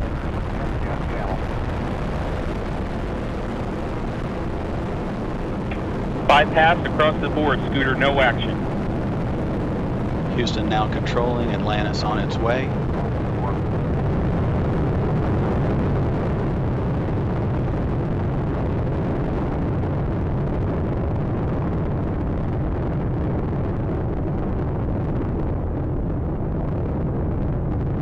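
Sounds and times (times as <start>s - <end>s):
rocket engines deep rumble: 0.0s - 28.0s.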